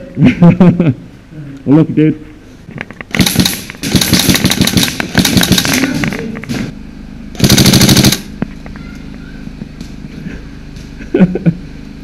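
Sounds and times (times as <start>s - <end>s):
airsoft rifles full-auto bursts: 3.1s - 6.1s, 7.4s - 8.4s.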